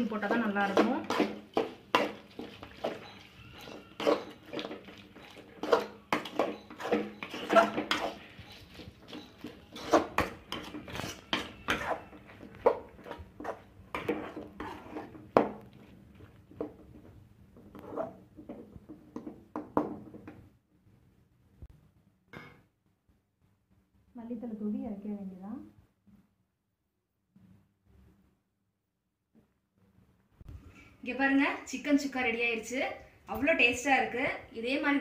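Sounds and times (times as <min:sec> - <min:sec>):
metal spoon scraping metal pan: 0:00.0 - 0:15.4, 0:17.6 - 0:18.2.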